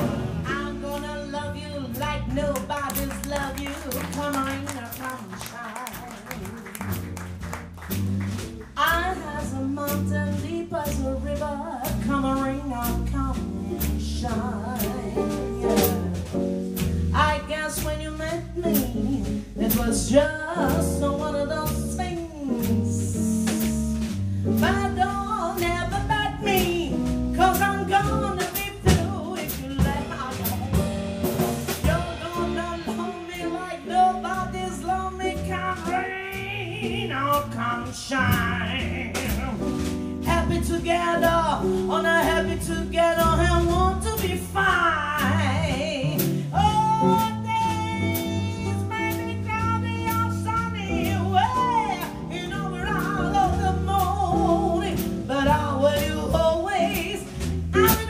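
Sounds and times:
woman singing: 0.0s - 7.1s, 8.7s - 30.9s, 31.7s - 58.0s
double bass: 0.0s - 58.0s.

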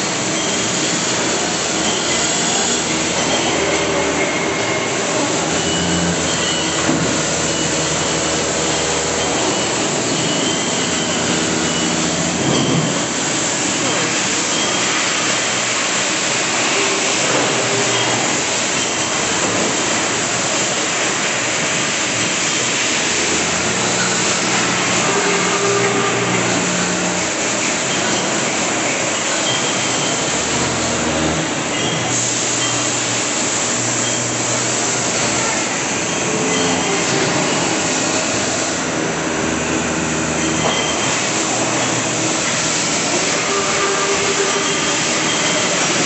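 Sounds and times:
machines mechanical din: 0.0s - 46.0s
low motor hums: 2.1s - 12.6s.

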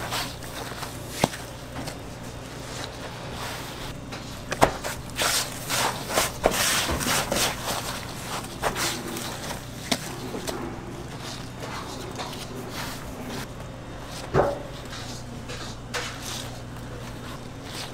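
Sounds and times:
breadcrumbs rustling and crunching: 0.0s - 17.9s
steady low hum: 0.0s - 17.9s.

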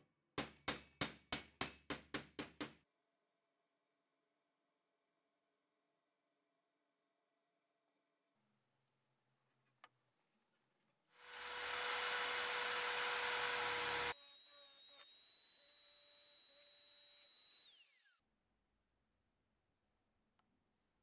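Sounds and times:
electric drill boring into steel: 11.2s - 18.2s.

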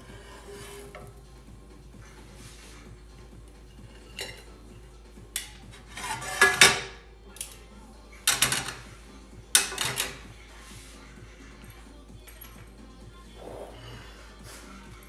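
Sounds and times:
metal utensils clattering on pan: 3.7s - 4.7s, 5.4s - 7.0s, 8.2s - 8.9s, 9.5s - 10.3s.

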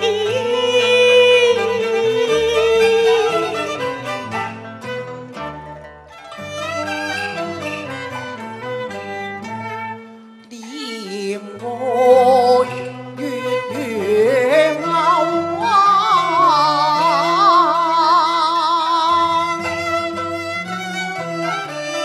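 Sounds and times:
woman singing opera: 0.0s - 4.0s, 10.5s - 19.6s
instrumental accompaniment: 0.0s - 22.0s.

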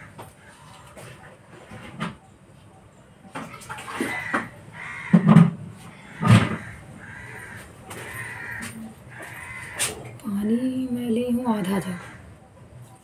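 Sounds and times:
bird calling: 2.1s - 10.2s
loud knocks: 5.1s - 5.6s, 6.2s - 6.7s.

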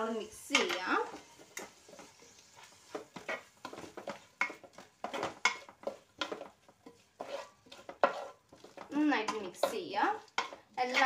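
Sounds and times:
wooden spoon stirring in metal pot: 0.0s - 11.0s.

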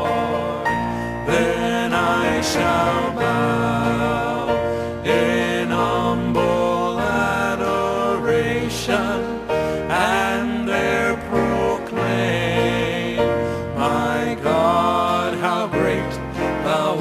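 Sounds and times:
person singing gospel: 0.0s - 17.0s
sustained instrumental backing: 0.0s - 17.0s.

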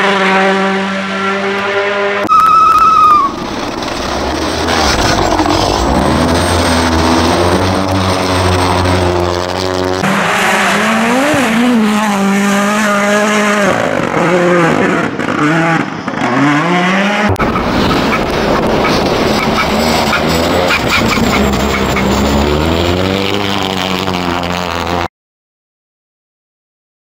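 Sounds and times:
rally car engine revving hard: 0.0s - 2.3s, 2.9s - 25.1s
rally car engine steady note: 3.3s - 15.2s.

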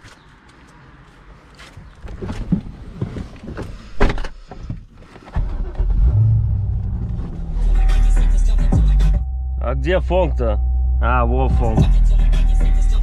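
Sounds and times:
car engine starting and idling: 5.1s - 13.0s.

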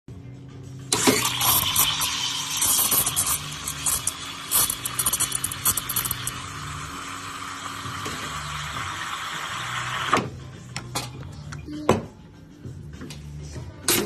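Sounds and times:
steam wand hissing in milk: 1.0s - 6.8s.

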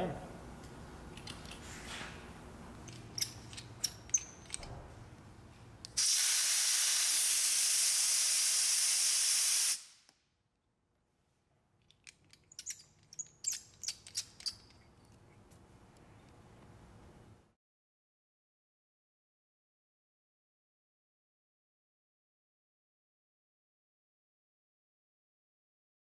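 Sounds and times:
air hissing out of tire valve: 6.0s - 10.0s.

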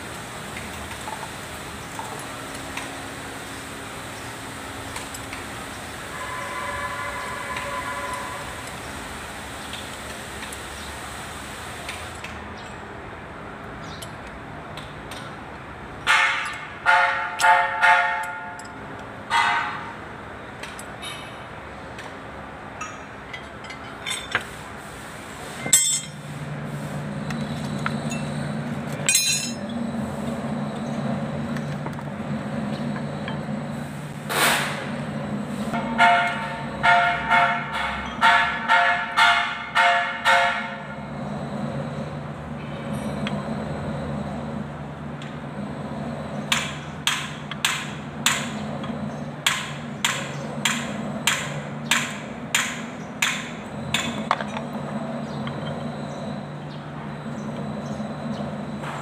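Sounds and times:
spanner tapping on metal: 18.2s - 18.8s.

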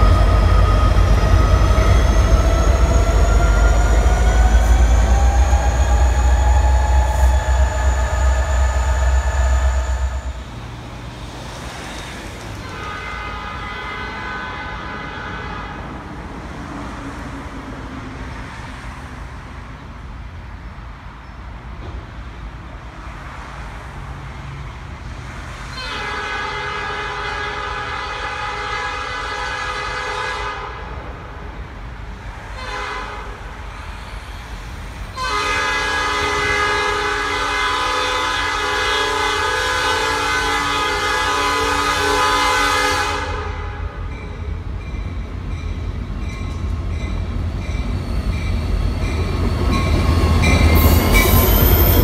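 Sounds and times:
train chime horn blasts: 0.0s - 10.6s, 25.8s - 30.8s, 35.2s - 44.2s
train wheels on rails: 0.0s - 13.6s, 32.2s - 52.0s
locomotive diesel engines: 0.0s - 52.0s.

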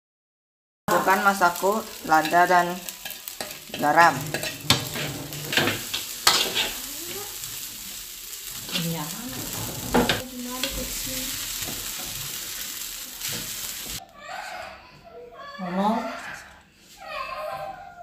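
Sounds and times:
rice sizzling in a wok: 0.9s - 14.0s
metal spatula scraping a wok: 1.0s - 14.0s.

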